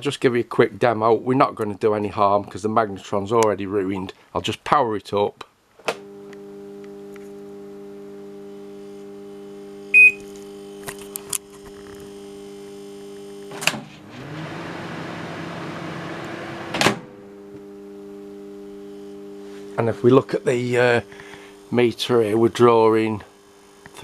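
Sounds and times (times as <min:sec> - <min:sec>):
microwave transformer humming: 0:05.9 - 0:24.0
rough loud buzz: 0:09.9 - 0:24.0
short beep: 0:10.0 - 0:10.2.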